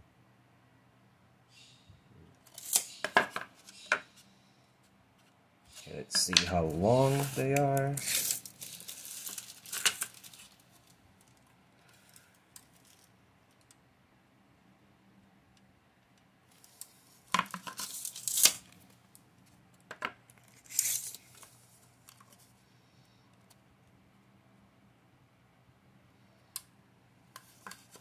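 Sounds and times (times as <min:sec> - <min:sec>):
tape measure scraping on wood: 0:05.8 - 0:08.5.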